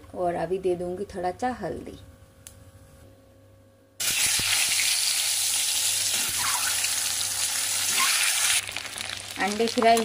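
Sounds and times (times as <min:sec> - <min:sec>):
hot oil sizzling: 0:04.0 - 0:10.0.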